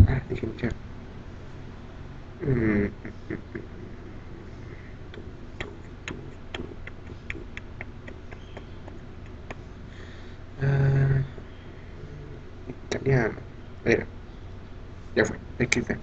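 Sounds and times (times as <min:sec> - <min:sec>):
man's voice: 0:00.0 - 0:00.6
low steady hum: 0:00.0 - 0:16.0.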